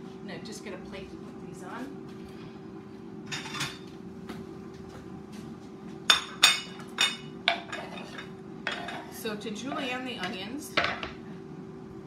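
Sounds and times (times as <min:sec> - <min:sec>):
dishes clattering: 0:06.1 - 0:09.2.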